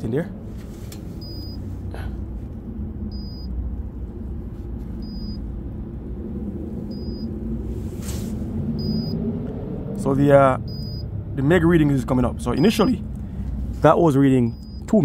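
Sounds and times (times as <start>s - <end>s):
steady low rumble: 0.0s - 15.0s
short high beeps: 1.2s - 1.6s, 3.1s - 3.5s, 5.0s - 5.4s, 8.8s - 9.2s, 10.7s - 11.0s, 14.5s - 14.9s.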